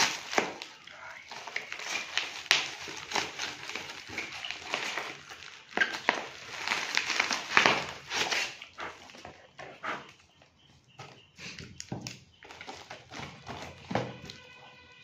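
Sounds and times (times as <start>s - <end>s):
polystyrene foam crunching: 0.0s - 9.3s, 12.4s - 15.0s
cardboard tearing: 0.0s - 9.4s, 12.4s - 14.9s.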